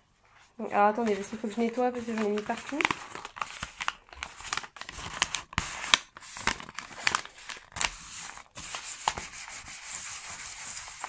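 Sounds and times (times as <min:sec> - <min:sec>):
paper rustling and crumpling: 0:00.2 - 0:11.0.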